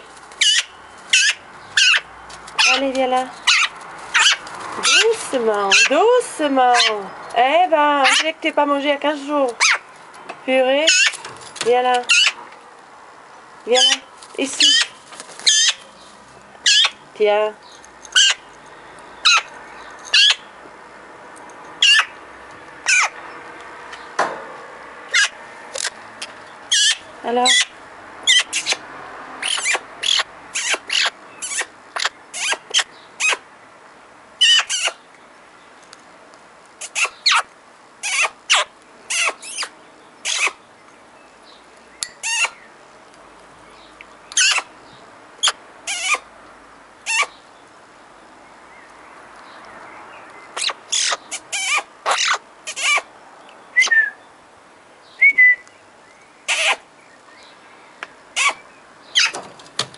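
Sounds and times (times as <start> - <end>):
magpie harsh calls: 0.4 - 7.1, 8.0 - 8.4, 12.0 - 12.4, 13.7 - 15.8, 16.6 - 17.0, 18.1 - 18.4, 21.8 - 22.2, 22.8 - 23.2, 25.1 - 25.4, 26.7 - 28.8, 29.4 - 33.4, 34.4 - 35.0, 36.8 - 40.6, 44.4 - 44.7, 45.4 - 46.3, 50.5 - 53.2, 56.5 - 56.9, 58.3 - 59.4.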